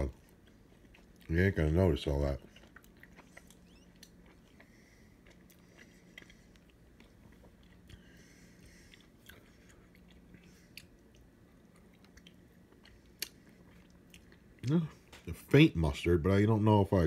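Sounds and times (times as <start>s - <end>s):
low steady hum: 0.0s - 17.0s
soft chewing mouth clicks: 2.4s - 15.3s.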